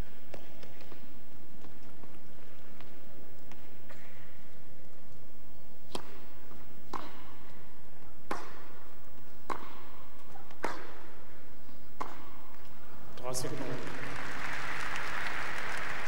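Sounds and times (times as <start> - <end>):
tennis ball hit by racket: 5.8 - 11.2, 12.0 - 12.7.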